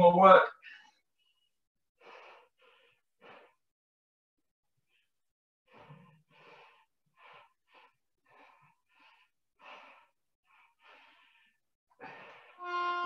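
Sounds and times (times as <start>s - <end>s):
person breathing hard: 0.6s - 3.7s, 4.9s - 12.6s.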